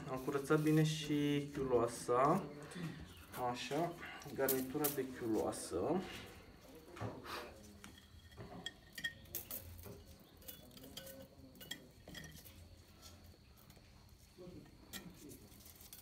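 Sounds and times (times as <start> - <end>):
metallic clinks and ticks: 7.8 - 13.0.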